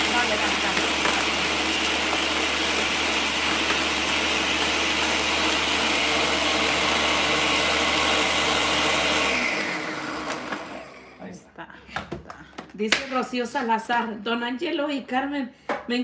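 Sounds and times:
blender blending ice: 0.0s - 11.4s.

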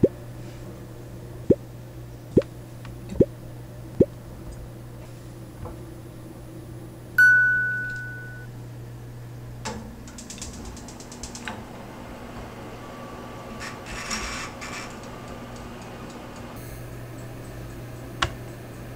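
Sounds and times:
bright ding: 7.2s - 8.5s
oven knobs clicking: 9.6s - 12.6s, 14.1s - 18.9s.

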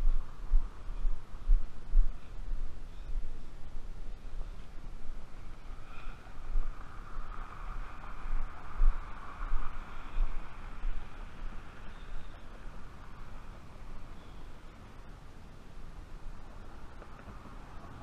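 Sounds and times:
wind buffeting microphone: 0.0s - 18.0s
vehicle passing: 5.3s - 15.1s, 16.3s - 18.0s.

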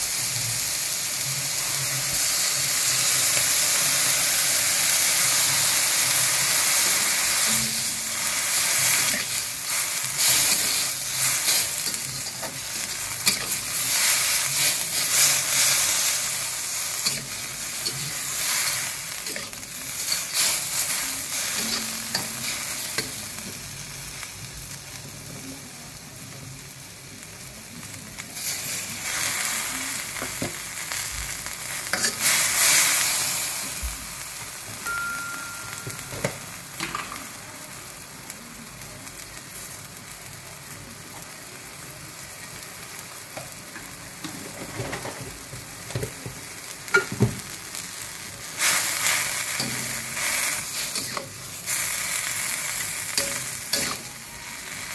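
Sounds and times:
food sizzling in a wok: 0.0s - 54.9s
metal spatula scraping wok: 7.0s - 23.2s, 48.6s - 51.8s, 52.7s - 54.9s.

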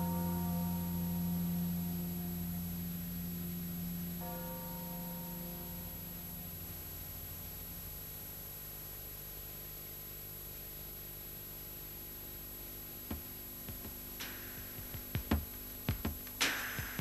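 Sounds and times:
steady hum and hiss: 0.0s - 17.0s
drum hits: 13.1s - 17.0s.

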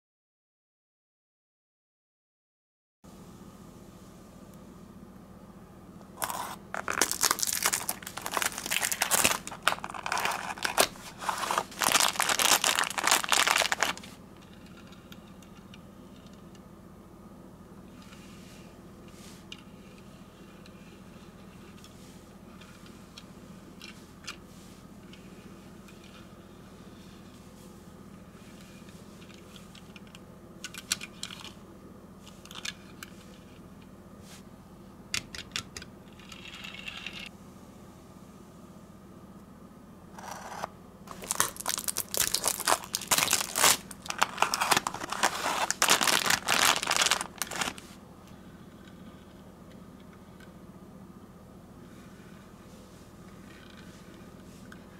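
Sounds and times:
packaging crinkling: 6.2s - 14.2s, 41.1s - 48.0s.

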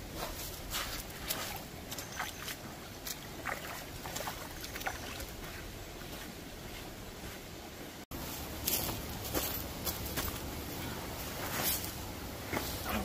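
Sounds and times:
boots splashing through creek: 0.1s - 7.5s
flowing water rushing: 1.2s - 6.1s.

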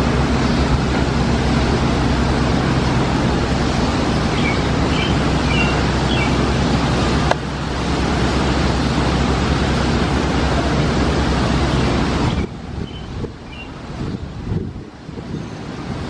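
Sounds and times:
subway train wheels rumbling: 0.0s - 15.1s.

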